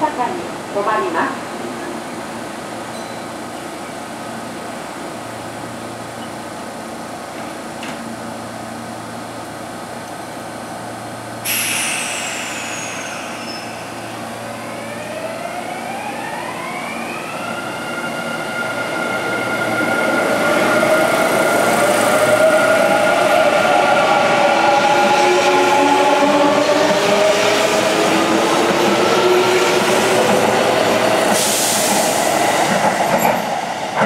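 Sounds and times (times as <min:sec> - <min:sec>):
train hum: 0:00.0 - 0:34.0
air brakes hissing: 0:11.4 - 0:14.5, 0:31.2 - 0:32.4.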